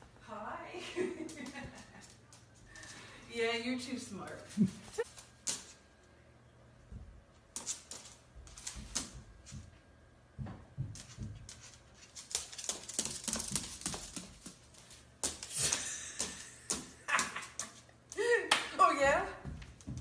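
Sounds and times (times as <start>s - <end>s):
bird claws tapping on floor: 10.4s - 17.8s.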